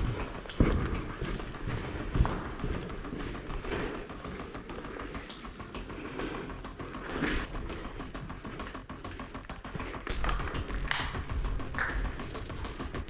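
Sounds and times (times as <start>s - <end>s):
footsteps crunching on gritty concrete: 0.0s - 5.3s.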